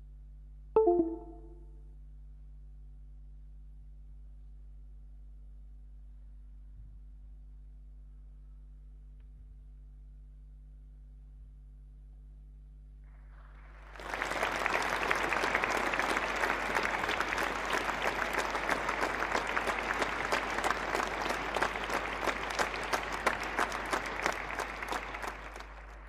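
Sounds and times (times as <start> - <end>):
audience applauding: 13.6 - 26.0.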